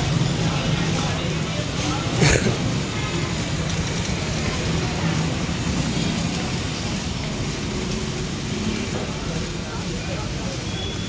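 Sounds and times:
murmur of voices: 0:00.0 - 0:11.0
traffic: 0:00.0 - 0:11.0.

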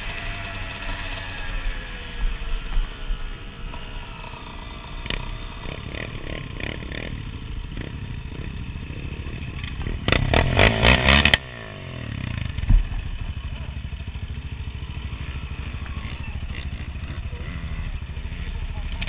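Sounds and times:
dirt bike engine running: 0:00.0 - 0:19.0
engine revving loudly: 0:10.0 - 0:12.5.

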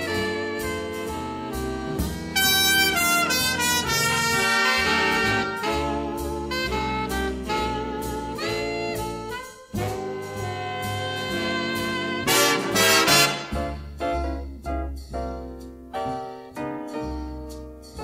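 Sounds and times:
big-band swing music: 0:00.0 - 0:18.0.

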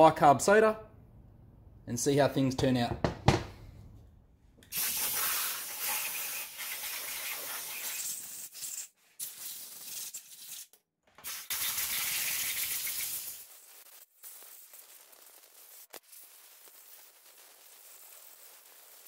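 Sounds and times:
sharp knock: 0:02.9 - 0:03.6
compressed air blow gun hissing: 0:04.7 - 0:08.8.

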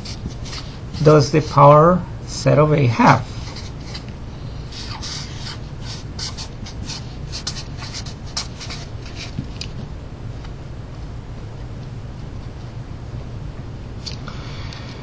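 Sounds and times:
marker scratching on paper: 0:00.0 - 0:01.7, 0:03.3 - 0:04.1, 0:04.7 - 0:09.4
low hum: 0:00.0 - 0:15.0.

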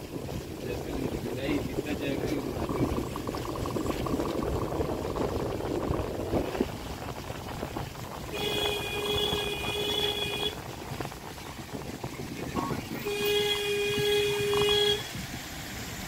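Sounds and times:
car road and engine noise: 0:00.0 - 0:16.0
vehicle horn: 0:08.3 - 0:10.6, 0:13.0 - 0:15.1.

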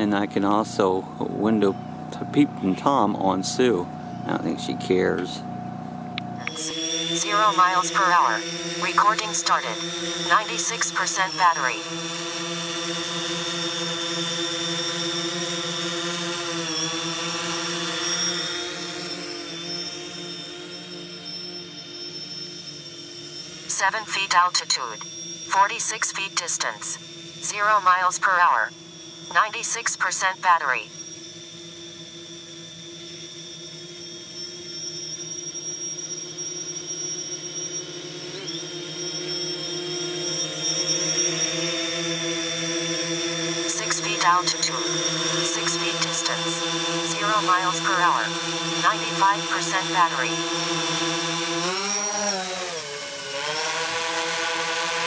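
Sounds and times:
quadcopter propellers whining: 0:00.0 - 0:55.0.

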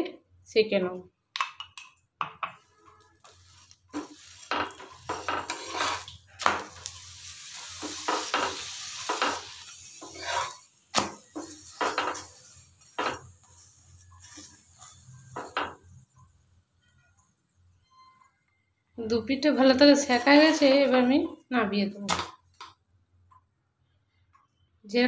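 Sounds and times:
oil sizzling in pan: 0:02.3 - 0:17.6, 0:19.7 - 0:21.3
metal spatula scraping pan: 0:02.5 - 0:18.4, 0:19.6 - 0:21.3.

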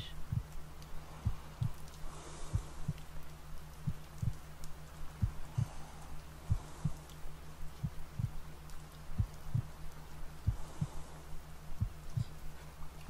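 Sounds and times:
steady low hum: 0:00.0 - 0:13.0
slow heartbeat: 0:00.2 - 0:03.2, 0:03.8 - 0:04.5, 0:05.1 - 0:08.5, 0:09.1 - 0:09.8, 0:10.4 - 0:11.1, 0:11.7 - 0:12.4.

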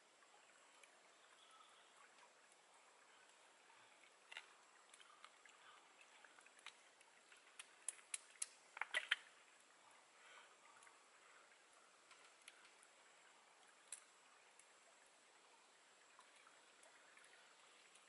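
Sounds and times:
small sharp clicks and cracks: 0:04.2 - 0:05.4, 0:06.5 - 0:09.3, 0:12.0 - 0:12.8, 0:13.8 - 0:14.7.

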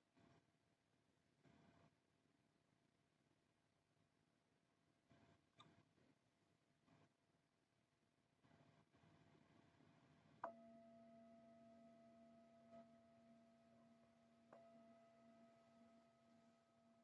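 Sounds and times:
meditation bell ringing: 0:10.5 - 0:17.0.

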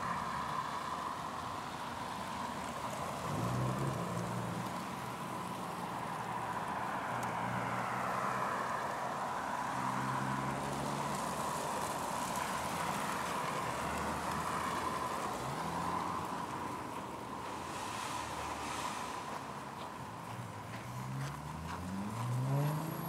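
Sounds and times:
high hum of city traffic: 0:00.0 - 0:23.0
tyres rolling over snow: 0:09.8 - 0:23.0.

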